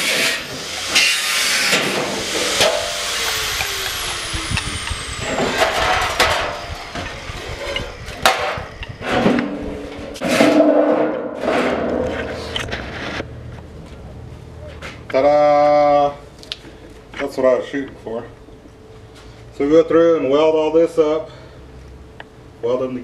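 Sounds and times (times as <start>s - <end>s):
angle grinder cutting steel: 0.0s - 10.2s
scraping bursts: 0.0s - 13.3s
metal clanks: 4.8s - 12.9s.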